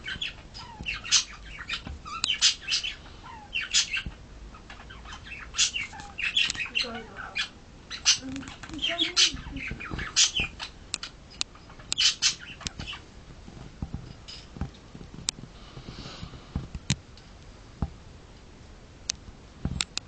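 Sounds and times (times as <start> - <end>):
sharp clicks: 19.1 - 20.0.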